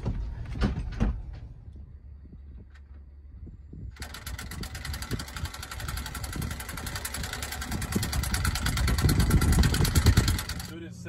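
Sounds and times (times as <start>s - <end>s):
engine running with fast pulse: 0.0s - 11.0s
irregular low rumbling: 0.0s - 11.0s.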